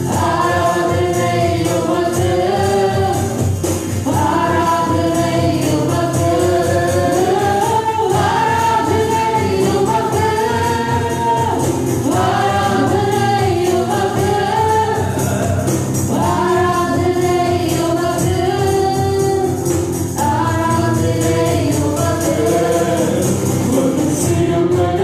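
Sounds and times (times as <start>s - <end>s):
band playing a steady beat: 0.0s - 25.0s
woman singing lead: 0.0s - 25.0s.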